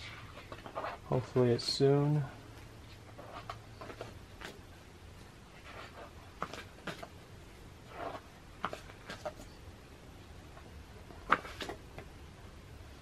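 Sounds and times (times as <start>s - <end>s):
book pages turning: 0.0s - 1.4s, 2.9s - 4.6s, 5.5s - 7.2s, 7.9s - 9.6s, 10.5s - 11.8s.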